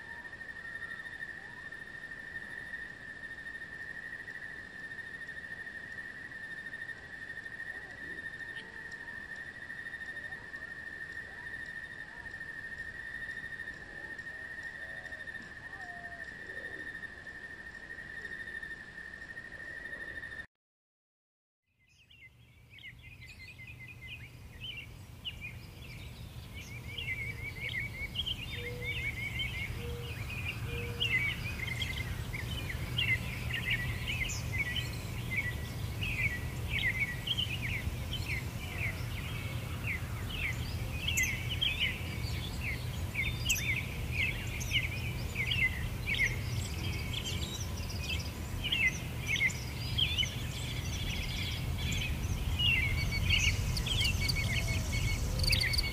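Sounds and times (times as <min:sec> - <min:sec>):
small birds chirping: 0:21.7 - 0:55.9
steady low rumble: 0:23.0 - 0:55.9.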